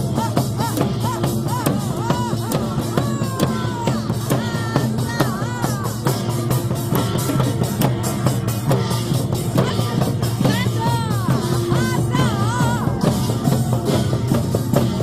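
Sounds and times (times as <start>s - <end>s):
hand drums beaten with sticks: 0.0s - 15.0s.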